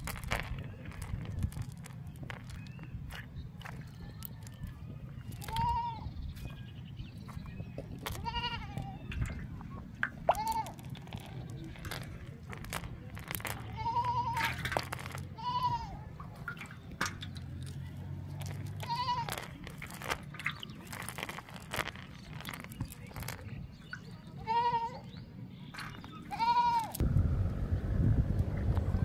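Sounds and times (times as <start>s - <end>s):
cast net clicks and rustles: 0.0s - 6.6s, 7.2s - 23.6s
wind on microphone: 27.0s - 29.0s.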